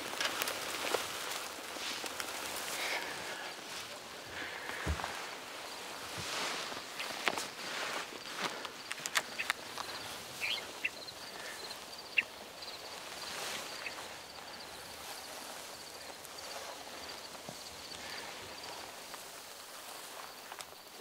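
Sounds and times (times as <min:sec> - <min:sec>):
clothing rustling through grass: 0:00.0 - 0:21.0
slow footsteps in grass: 0:00.0 - 0:21.0
faint high chirping: 0:08.8 - 0:14.2.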